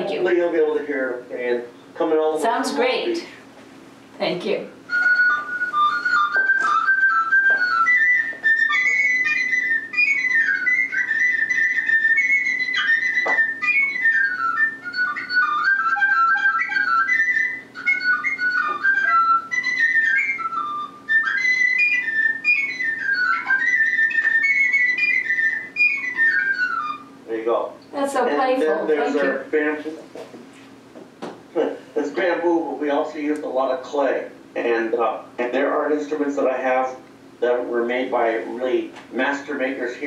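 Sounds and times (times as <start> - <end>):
flute playing slow melody: 4.9 - 27.2, 28.6 - 29.5.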